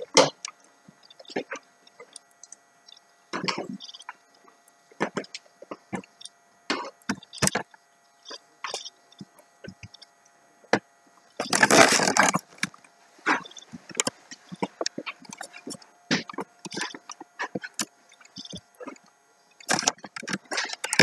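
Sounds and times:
rustling scrape: 11.4s - 12.5s
claw scrapes: 11.4s - 19.0s.

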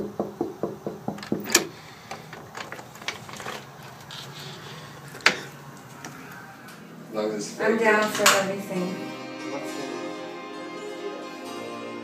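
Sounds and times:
knuckles rapping on wooden door: 0.0s - 1.7s
light taps and clicks of door: 0.6s - 1.7s.

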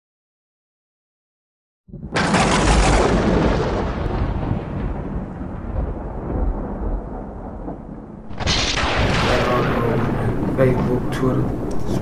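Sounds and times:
loud rumbling boom: 1.9s - 12.0s.

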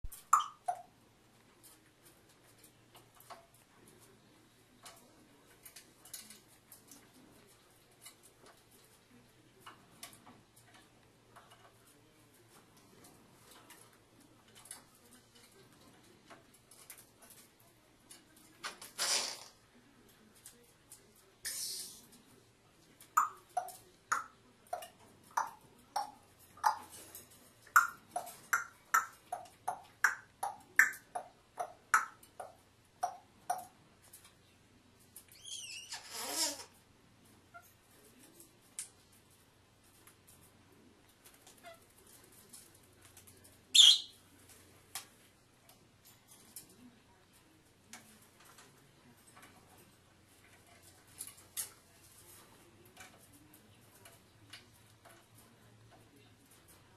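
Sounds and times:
parrot popping clicks: 0.0s - 0.8s
parrot clicking on wire perch: 0.1s - 0.9s, 23.0s - 34.2s
parrot warbling whistle: 43.8s - 44.1s.

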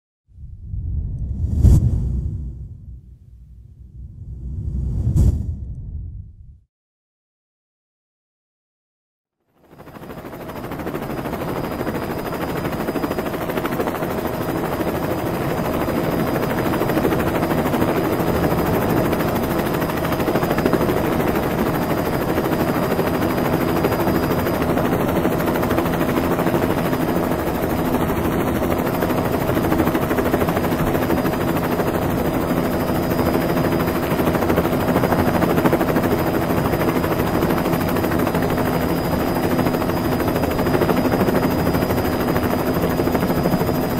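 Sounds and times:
helicopter rotor chop: 9.7s - 43.9s.

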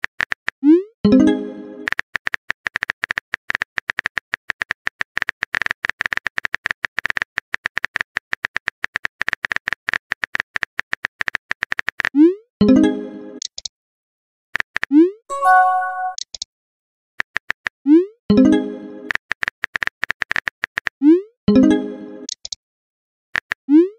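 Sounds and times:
chime: 15.3s - 16.2s.

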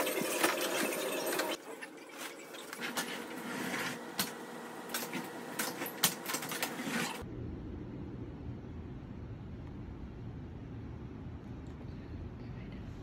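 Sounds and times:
low steady rumble: 7.2s - 13.0s.

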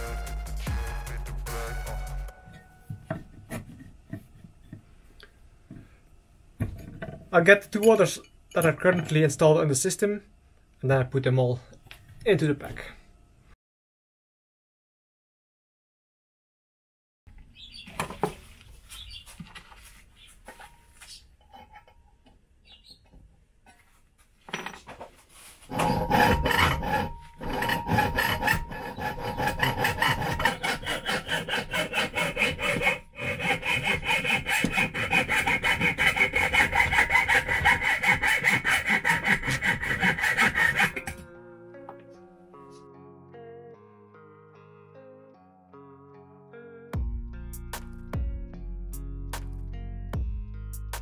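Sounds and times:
hacksaw cutting copper tube: 25.7s - 41.2s
guitar music: 41.2s - 50.9s.

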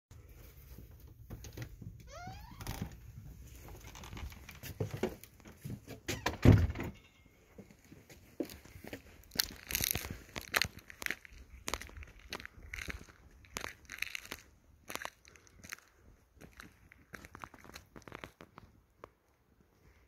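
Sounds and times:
footsteps crunching on icy snow: 8.0s - 18.8s.

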